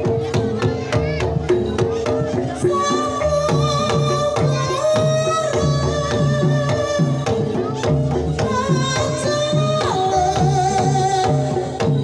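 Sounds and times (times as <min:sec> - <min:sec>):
woman singing long notes: 0:02.6 - 0:11.8.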